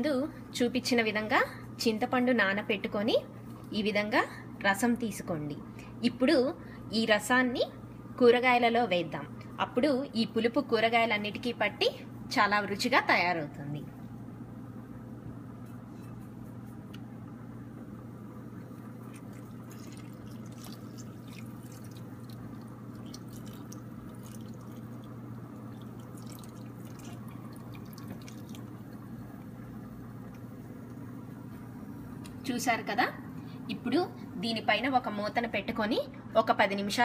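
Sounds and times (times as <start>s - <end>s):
steady low hum: 0.0s - 37.0s
faint drips and splashes: 18.8s - 29.6s
water pouring into a pot: 19.0s - 29.2s.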